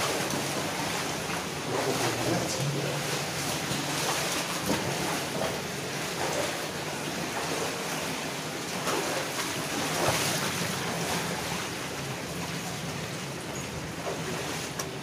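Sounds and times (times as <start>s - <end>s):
water rushing through a culvert: 0.0s - 15.0s.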